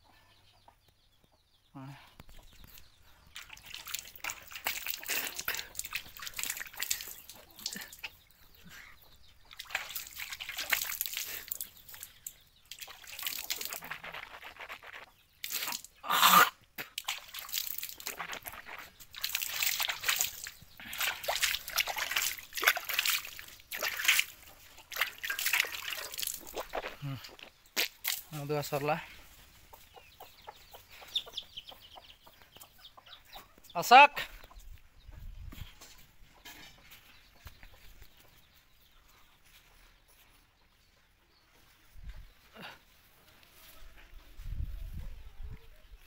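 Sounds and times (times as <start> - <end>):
water sloshing and splashing: 3.3 - 8.1, 9.5 - 16.0, 16.8 - 28.3.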